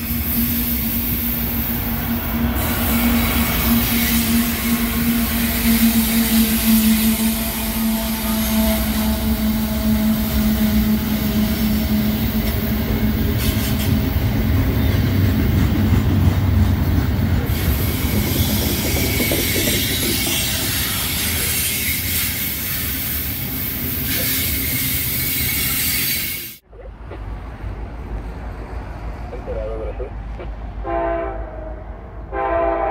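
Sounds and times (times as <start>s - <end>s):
diesel locomotive engine drone: 0.0s - 32.9s
train wheels clattering on rails: 9.4s - 26.1s.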